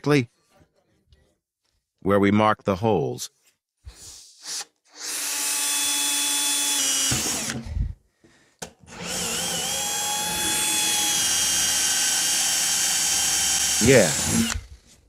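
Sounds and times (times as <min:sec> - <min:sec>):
electric drill boring into plastic: 0:05.0 - 0:07.8, 0:08.9 - 0:14.8.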